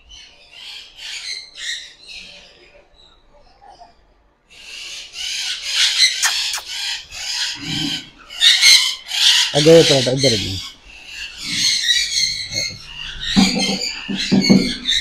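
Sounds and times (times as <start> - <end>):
parrots screeching: 4.6 - 15.0.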